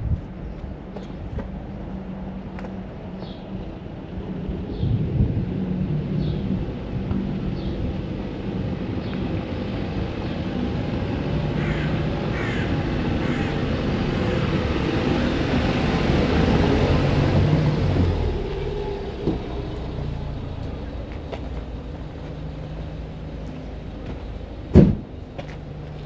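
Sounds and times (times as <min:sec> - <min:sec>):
vehicle engine rumble: 0:00.0 - 0:26.0
short bird calls: 0:11.6 - 0:13.5.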